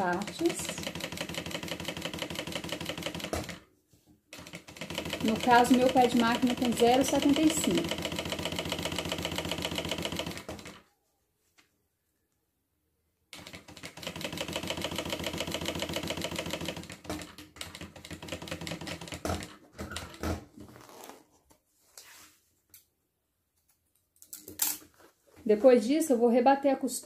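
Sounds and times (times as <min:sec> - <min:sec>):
sewing machine stitching: 0:00.0 - 0:03.7, 0:04.3 - 0:10.8, 0:13.3 - 0:20.9.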